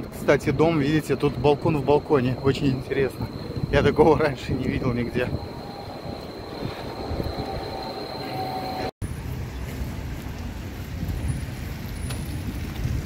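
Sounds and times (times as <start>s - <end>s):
thin high whistle: 0.8s - 8.9s
low rumble of traffic: 8.5s - 13.0s.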